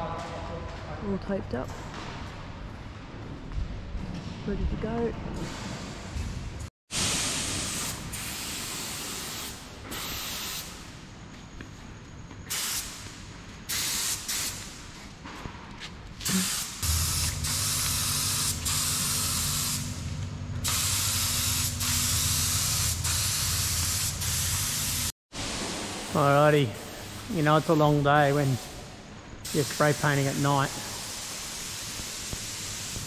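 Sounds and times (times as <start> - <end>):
paint spray gun hissing: 6.9 - 10.8, 12.5 - 13.0, 13.7 - 14.6, 16.3 - 27.8, 29.5 - 33.0.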